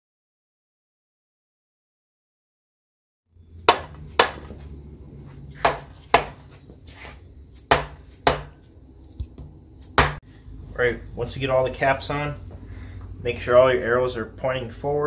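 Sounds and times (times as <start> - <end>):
low steady hum: 3.4 - 15.0.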